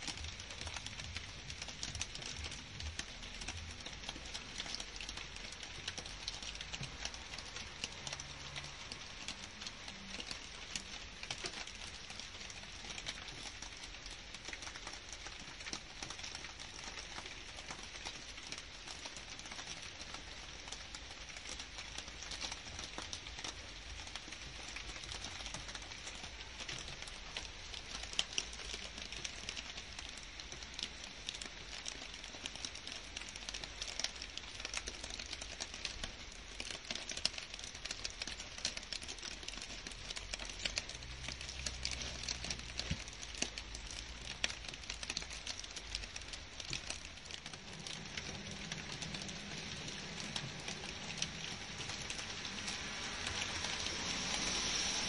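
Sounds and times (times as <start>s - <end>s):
rain on foliage and grass: 0.0s - 55.0s.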